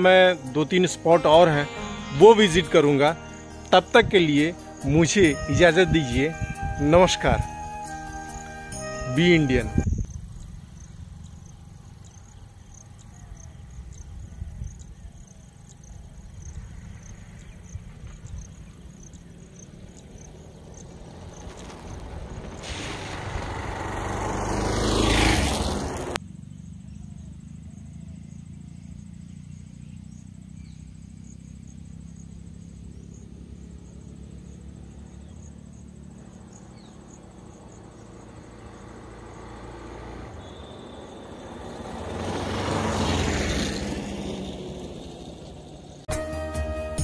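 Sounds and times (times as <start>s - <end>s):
vehicle passing: 16.2s - 46.1s.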